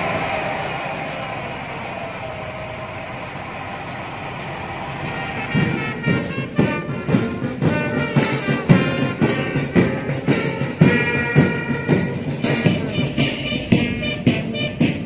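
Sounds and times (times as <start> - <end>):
brass band music: 4.8 - 15.0
steady drum beat: 4.9 - 15.0.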